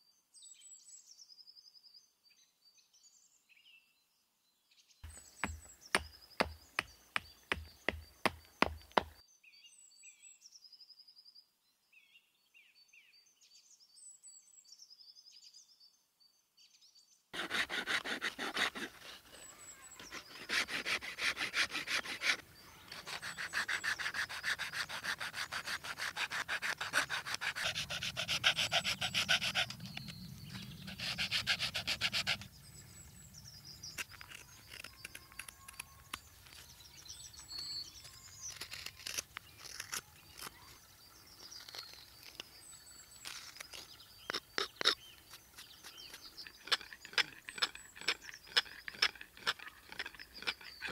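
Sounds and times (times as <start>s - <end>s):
birds chirping: 5.0s - 9.2s, 17.5s - 50.9s
hacksaw sawing through wood: 17.4s - 30.1s, 30.8s - 32.5s, 45.8s - 50.9s.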